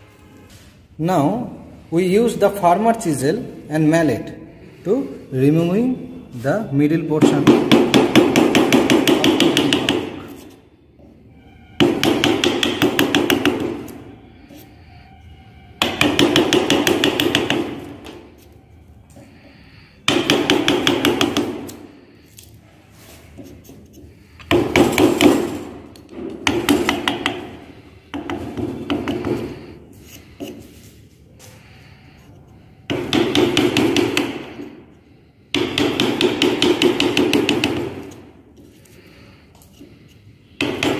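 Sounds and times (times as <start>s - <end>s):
wooden mallet striking chisel: 7.1s - 10.6s, 11.8s - 14.7s, 15.8s - 18.5s, 20.0s - 21.9s, 23.4s - 30.6s, 32.8s - 34.8s, 35.5s - 38.4s, 40.6s - 40.9s.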